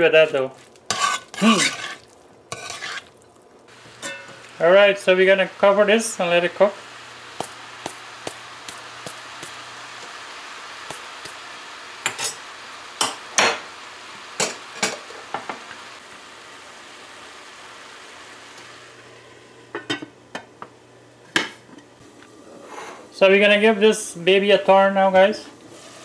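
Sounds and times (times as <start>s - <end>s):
vegetables sizzling: 0.0s - 26.0s
metal spoon scraping in pot: 0.9s - 3.1s
metal lid clanking on pot: 4.0s - 4.4s.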